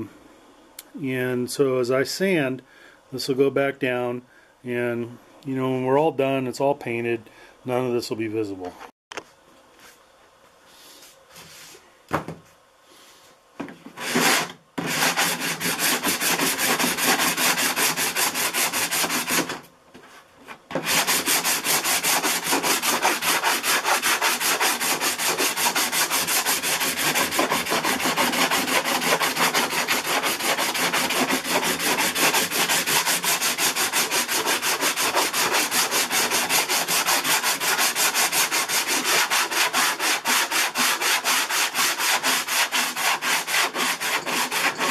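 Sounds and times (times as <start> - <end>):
sandpaper rubbing back and forth: 14.0 - 19.6, 20.7 - 44.9.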